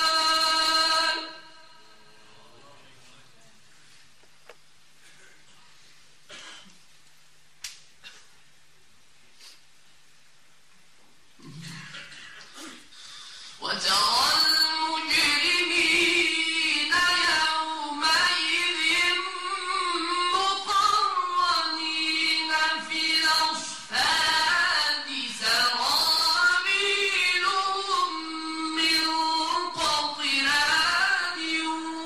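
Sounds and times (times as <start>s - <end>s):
man reciting in song: 0.0s - 3.4s, 13.6s - 32.0s.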